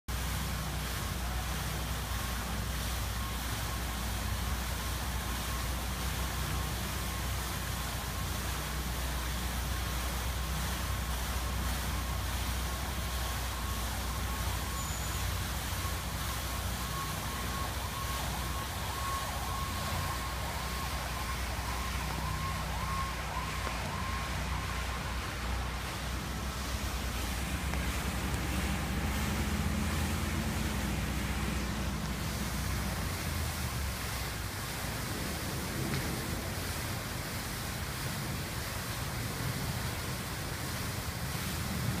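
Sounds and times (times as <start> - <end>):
distant wavering siren: 0.1 - 42.0
fountain water splashing: 0.1 - 42.0.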